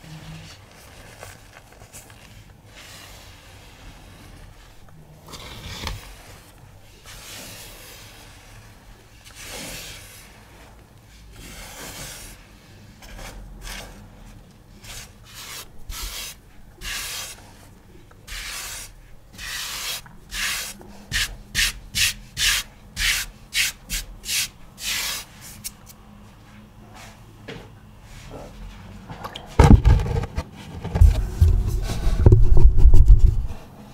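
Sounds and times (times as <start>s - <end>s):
powder scraped and rubbed: 0.2s - 25.8s.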